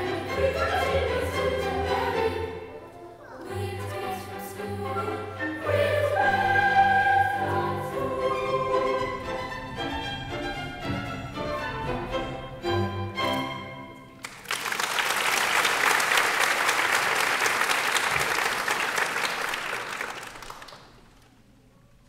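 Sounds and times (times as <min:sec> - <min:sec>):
string orchestral music: 0:00.0 - 0:14.4
audience applause: 0:14.2 - 0:21.4.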